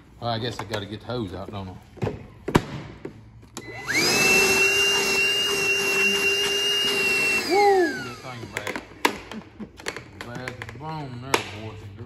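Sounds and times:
vacuum motor whine: 3.6s - 8.8s.

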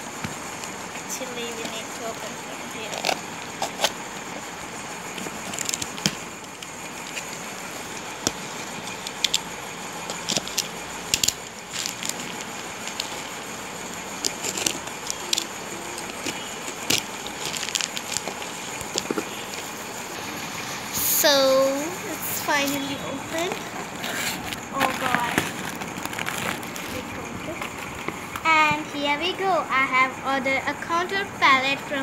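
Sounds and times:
packaging crackling and scraping: 2.8s - 20.6s, 22.5s - 28.4s.

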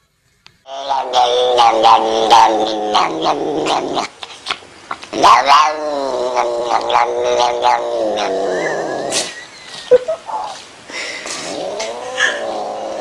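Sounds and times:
cat yowling: 0.7s - 4.1s, 5.2s - 8.6s, 11.6s - 13.0s.

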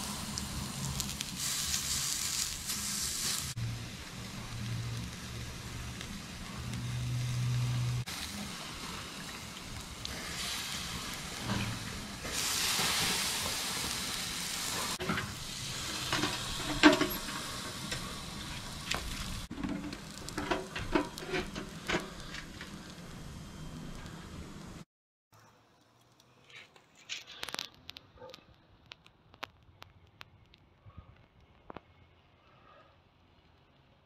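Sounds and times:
brine dripping hiss: 0.0s - 24.2s
meat sizzling on a grill: 0.0s - 24.8s
metal clanks of barbecue hood: 15.0s - 18.2s, 19.0s - 22.7s.

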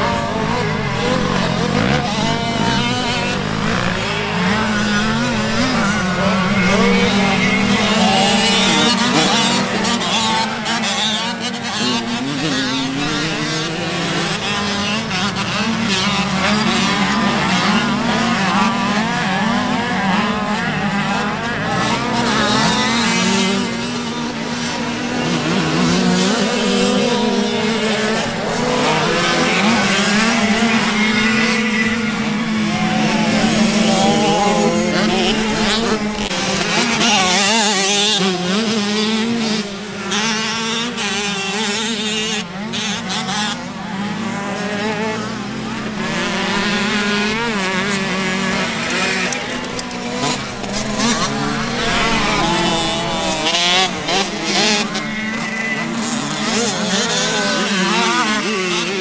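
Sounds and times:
motocross bike engines revving: 0.0s - 59.0s
steady low drone: 49.3s - 57.3s.

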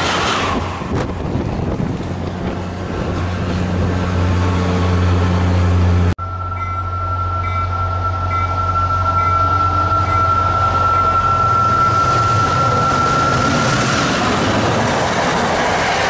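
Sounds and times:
diesel locomotive engine drone: 0.0s - 16.0s
low rumble of approaching train: 0.0s - 16.0s
high-pitched whine: 5.4s - 15.9s.

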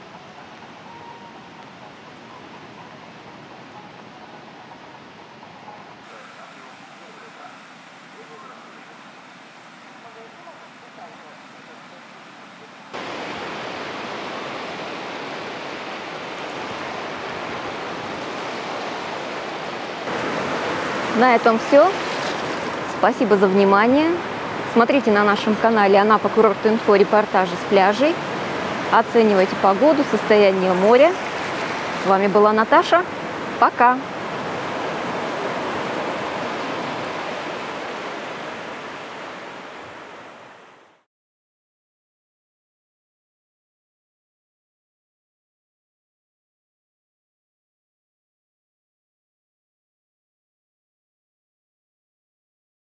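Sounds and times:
surf washing on sandy shore: 0.0s - 41.0s.

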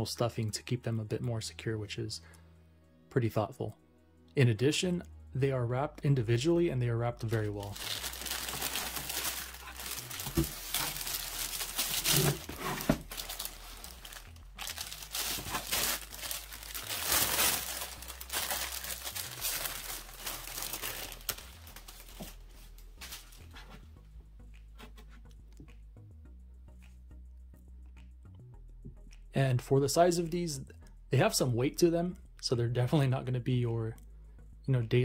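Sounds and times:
tissue paper crinkling: 7.3s - 23.4s.

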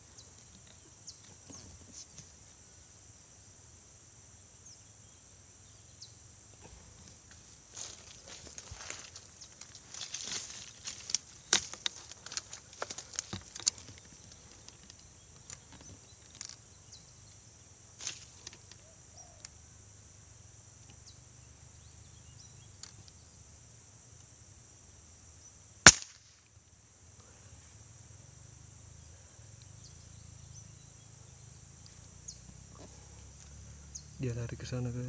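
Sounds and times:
high drone of insects: 0.0s - 35.0s
rifle handling clicks and rustles: 11.0s - 16.6s
air rifle shot: 25.8s - 26.3s.

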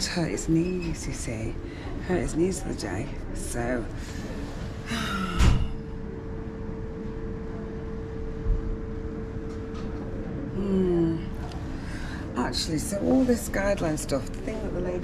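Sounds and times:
machinery hum: 0.0s - 15.0s.

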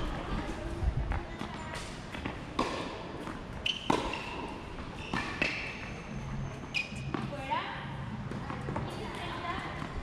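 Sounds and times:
tennis ball struck and bouncing: 1.8s - 5.9s.

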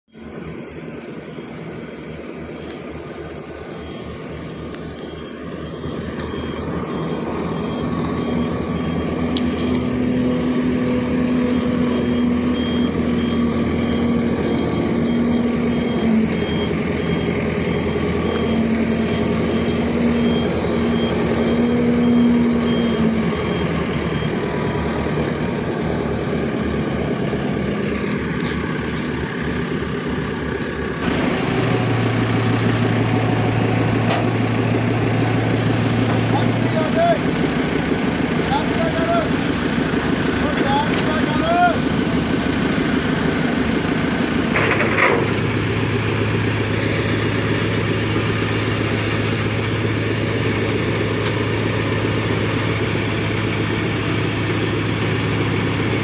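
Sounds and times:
diesel engine running: 0.1s - 56.0s
faint high beeping: 1.2s - 25.1s.

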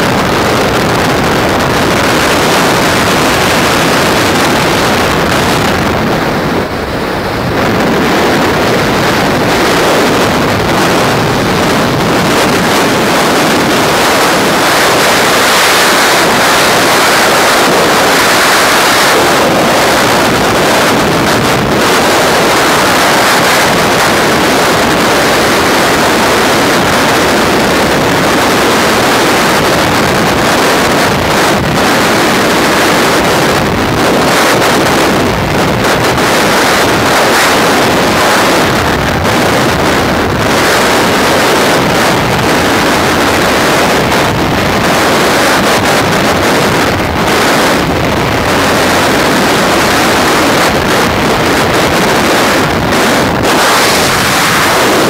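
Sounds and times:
freefall wind buffeting microphone: 0.0s - 55.0s.

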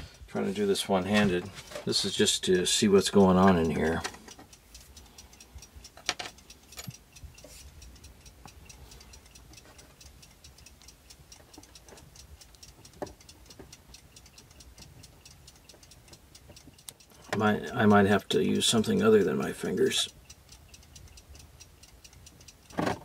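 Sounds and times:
clock ticking: 0.9s - 23.0s
sharp clicks of metal parts: 5.8s - 8.0s.

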